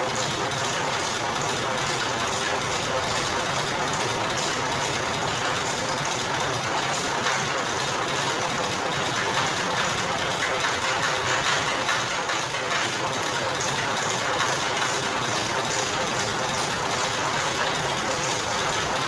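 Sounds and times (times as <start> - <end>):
crushing machine hum and rattle: 0.0 - 19.0.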